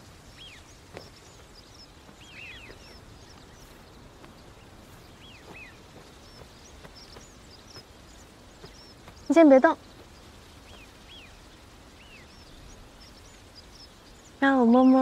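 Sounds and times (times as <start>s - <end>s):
faint outdoor hiss: 0.0s - 15.0s
small birds chirping: 0.0s - 15.0s.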